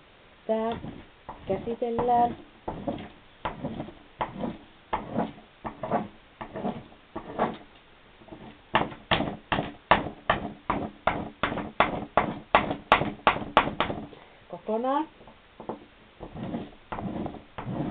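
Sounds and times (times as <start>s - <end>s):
wax candle rubbing on glossy paper: 2.7s - 7.6s, 16.3s - 17.9s.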